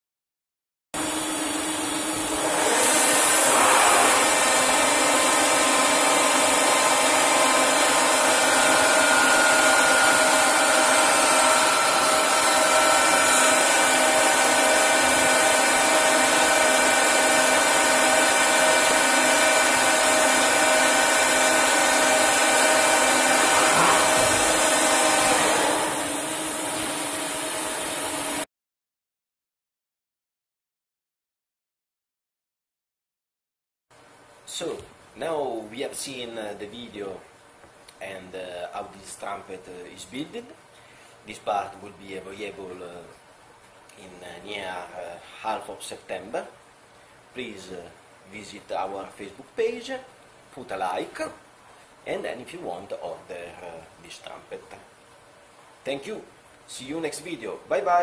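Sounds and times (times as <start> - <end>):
lathe machining metal: 1.0 - 28.4.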